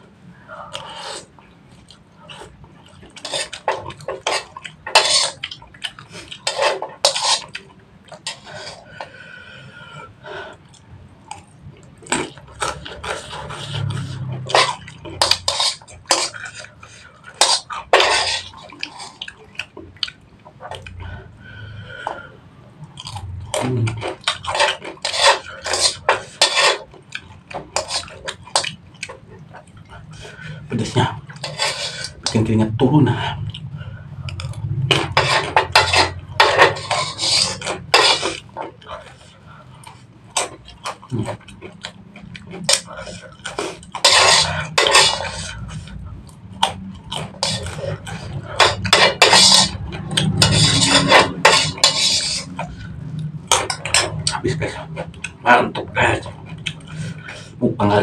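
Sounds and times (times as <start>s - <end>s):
chewing: 0.7s - 9.2s, 10.5s - 21.3s, 22.0s - 32.4s, 33.3s - 57.6s
metal spoon scraping a wok: 3.0s - 5.6s, 6.2s - 8.9s, 12.3s - 19.3s, 23.5s - 28.8s, 29.6s - 32.5s, 34.4s - 39.2s, 42.5s - 55.3s.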